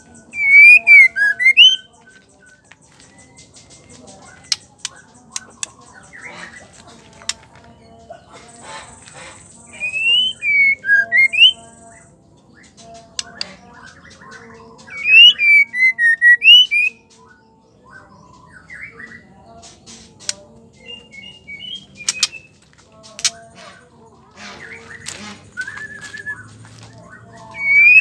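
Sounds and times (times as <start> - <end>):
bird whistling song phrases: 0.2 - 2.2, 9.7 - 17.2, 17.8 - 19.3, 20.8 - 22.6, 24.6 - 28.0.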